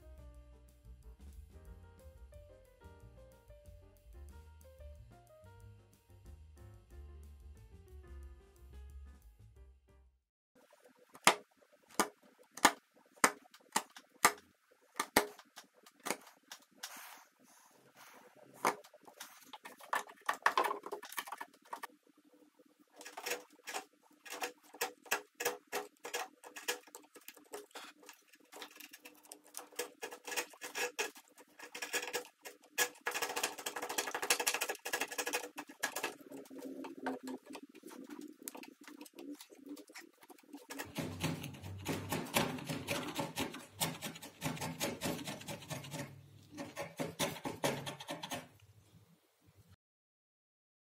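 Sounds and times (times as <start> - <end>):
hand tool scraping wood: 23.0 - 37.3, 38.5 - 48.5.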